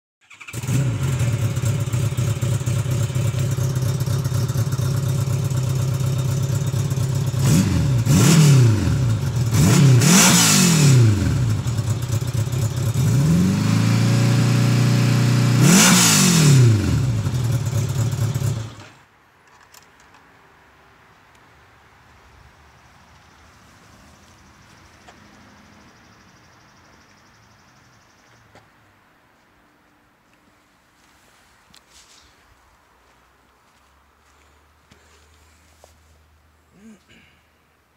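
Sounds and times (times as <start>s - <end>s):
motorcycle engine idling and revving: 0.2s - 19.0s.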